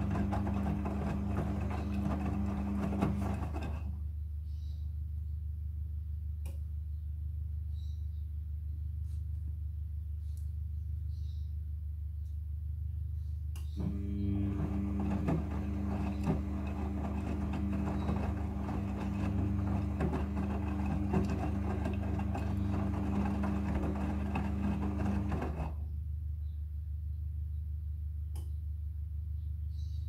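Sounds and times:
washing machine motor hum: 0:00.0 - 0:04.0, 0:13.8 - 0:25.8.

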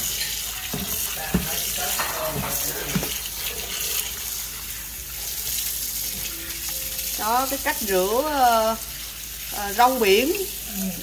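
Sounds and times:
tap water splashing in sink: 0:00.0 - 0:03.3.

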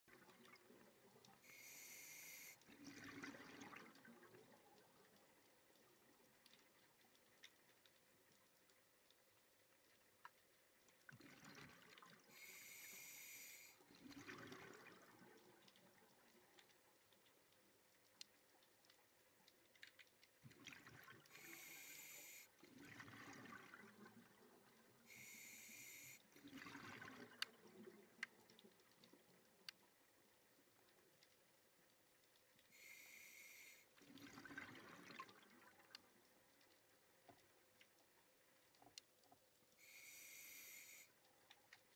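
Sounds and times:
diver inhaling through regulator: 0:01.4 - 0:02.6, 0:12.3 - 0:13.8, 0:21.4 - 0:22.5, 0:25.1 - 0:26.2, 0:32.8 - 0:33.9, 0:39.8 - 0:41.1
gurgle of exhaled bubbles: 0:02.7 - 0:04.5, 0:11.1 - 0:12.3, 0:13.9 - 0:15.6, 0:20.4 - 0:21.4, 0:22.6 - 0:24.6, 0:26.4 - 0:28.1, 0:34.1 - 0:35.9.

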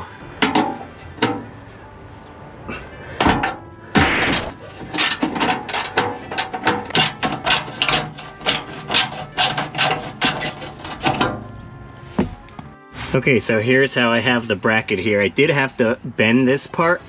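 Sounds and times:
short scraping rush: 0:12.8 - 0:13.6.

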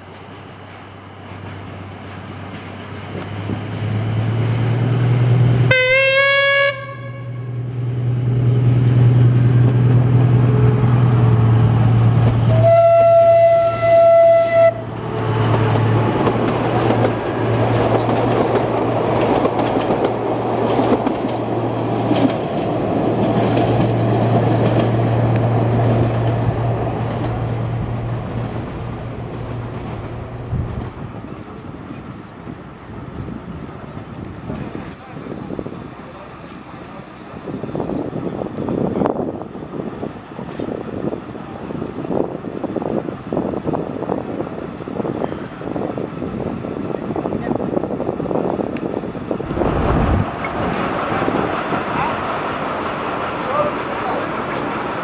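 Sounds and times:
diesel locomotive engine running: 0:00.0 - 0:55.0
locomotive horn blasts: 0:05.7 - 0:07.6, 0:12.4 - 0:15.6
train wheels clattering on rails: 0:15.0 - 0:28.6.

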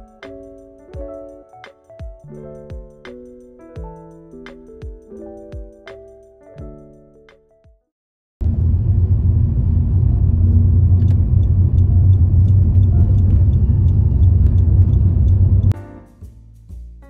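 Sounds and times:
car engine and road rumble: 0:08.4 - 0:15.8.

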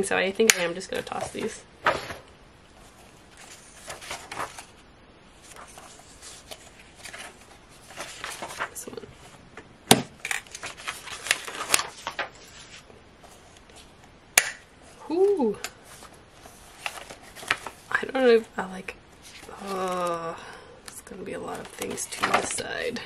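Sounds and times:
paper rustling in a ring binder: 0:02.8 - 0:04.8, 0:05.4 - 0:09.4, 0:10.3 - 0:14.0, 0:15.8 - 0:18.5, 0:19.1 - 0:20.2, 0:21.0 - 0:23.0.

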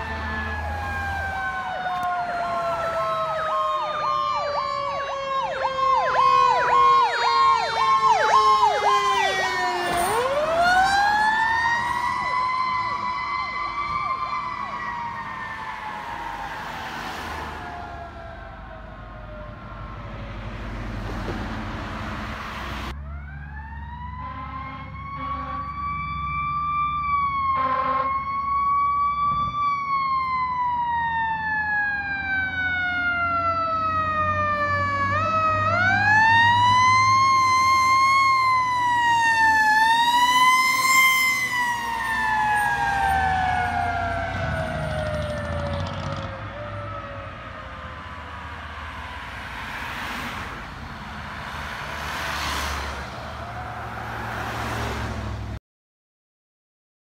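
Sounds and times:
mechanical siren wailing: 0:00.0 - 0:20.4, 0:23.0 - 0:49.2
truck engines rumbling: 0:00.0 - 0:55.6
air horn blasts: 0:24.2 - 0:25.8, 0:27.5 - 0:28.2.

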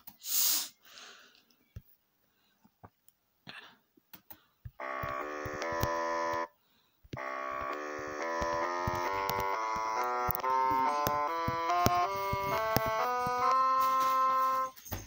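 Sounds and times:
sampled bassoon notes: 0:04.8 - 0:06.5, 0:07.2 - 0:14.8.

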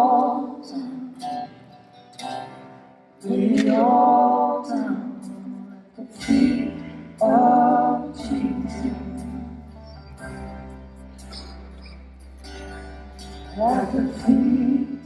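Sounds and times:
backing voices singing: 0:00.0 - 0:01.5, 0:03.2 - 0:09.7, 0:13.6 - 0:15.0
man singing lead vocals: 0:00.0 - 0:01.5, 0:03.2 - 0:09.7, 0:13.5 - 0:15.0
acoustic guitar: 0:00.0 - 0:15.0.

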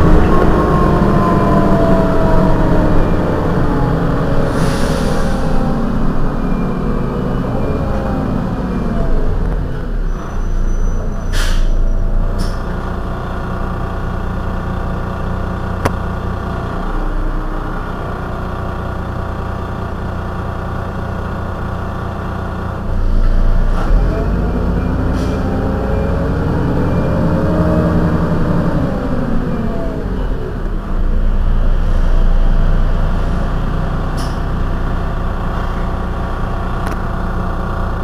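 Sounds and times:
rising and falling whine: 0:00.0 - 0:10.0
bus engine idling: 0:00.0 - 0:38.0.

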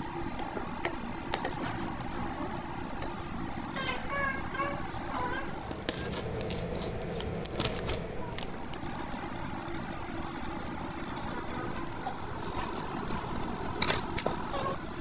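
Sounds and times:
plastic sachets crinkling: 0:05.6 - 0:14.8.

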